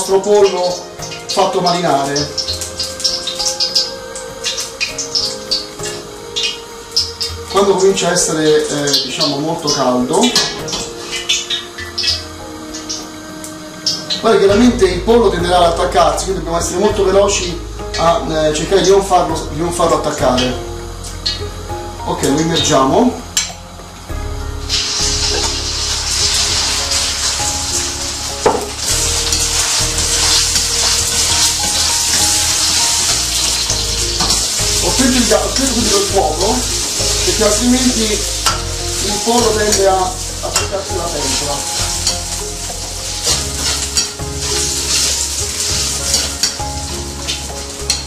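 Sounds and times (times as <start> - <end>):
chicken sizzling in hot oil: 0.0 - 48.0
metal utensils scraping a wok: 8.5 - 14.5, 24.7 - 48.0.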